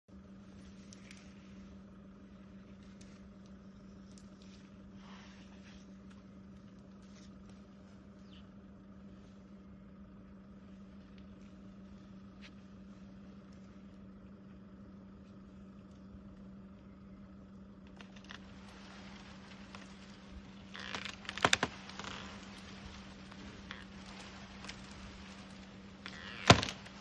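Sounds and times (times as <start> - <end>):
crackling of branches: 0.1 - 27.0
elephant snapping branches: 17.9 - 27.0.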